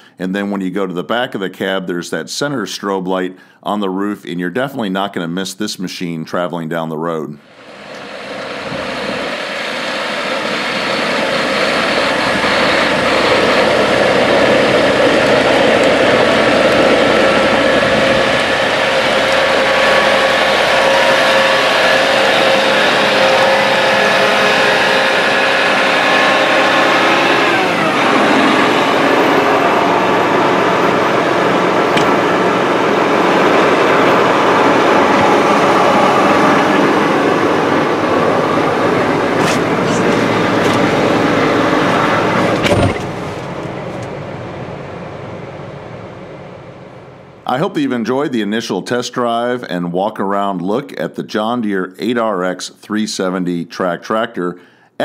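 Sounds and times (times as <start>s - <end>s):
tracked tractor rumbling on gravel: 11.4s - 44.3s.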